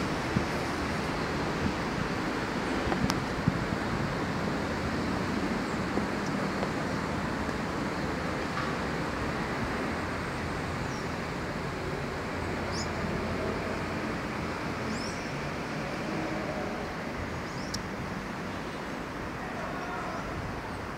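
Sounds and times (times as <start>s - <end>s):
city background noise: 0.0s - 20.9s
rain: 0.0s - 20.9s.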